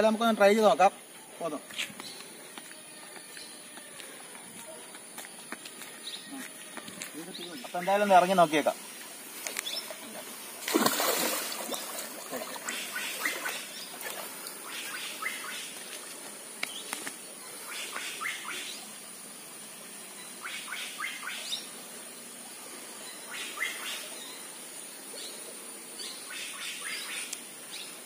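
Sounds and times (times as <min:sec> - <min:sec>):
water sloshing from wading: 0:09.1 - 0:16.4
hands splashing in water: 0:10.6 - 0:14.3.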